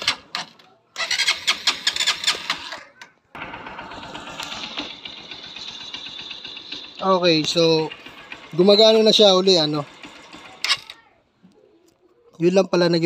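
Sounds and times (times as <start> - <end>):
electric starter cranking engine: 0.0 - 11.0
motorcycle engine idling: 1.0 - 10.9.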